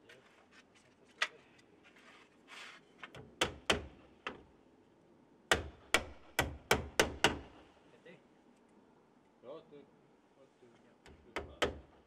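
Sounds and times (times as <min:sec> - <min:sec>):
shingles rustling: 0:00.0 - 0:03.2
hatchet hammering nails into shingles: 0:03.1 - 0:04.5, 0:05.5 - 0:07.6, 0:11.1 - 0:12.0.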